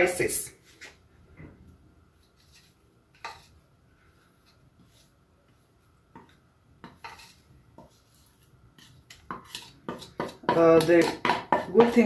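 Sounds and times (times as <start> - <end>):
wooden spoon scraping ceramic plate: 2.2 - 3.6, 6.1 - 12.0.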